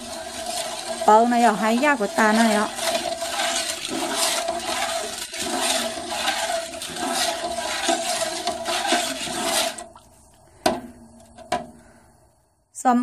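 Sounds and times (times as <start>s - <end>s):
sauce sloshing in a pot: 0.0s - 10.3s.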